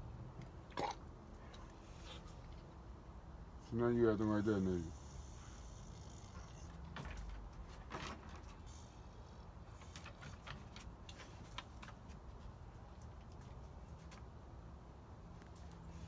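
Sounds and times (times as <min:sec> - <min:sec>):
dogs clicking and tapping in pens: 0:06.6 - 0:08.8, 0:09.7 - 0:14.3.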